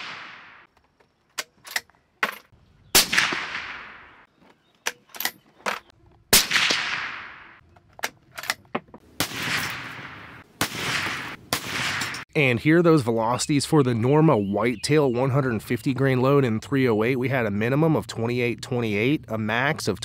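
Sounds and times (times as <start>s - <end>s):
suppressed rifle shots: 2.9s - 4.3s, 6.3s - 7.6s, 9.2s - 12.2s.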